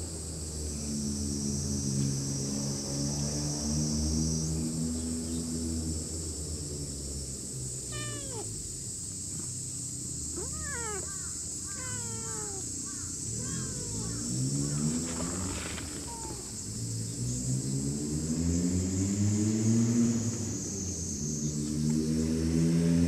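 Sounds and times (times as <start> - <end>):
cat meowing: 7.8 - 8.6, 10.3 - 14.8, 16.0 - 16.5.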